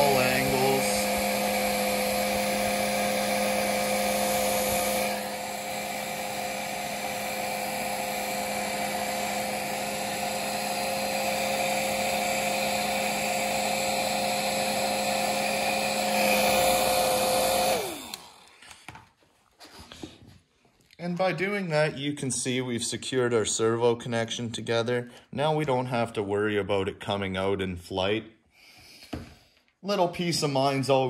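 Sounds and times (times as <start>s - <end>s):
heat gun fan whine: 0.0s - 19.1s.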